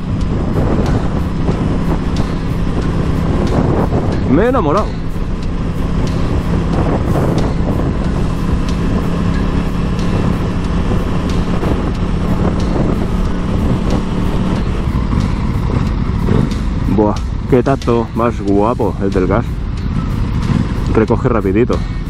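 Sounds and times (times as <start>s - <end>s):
wind rushing over helmet: 0.0s - 21.1s
motorcycle engine cruising: 0.0s - 22.0s.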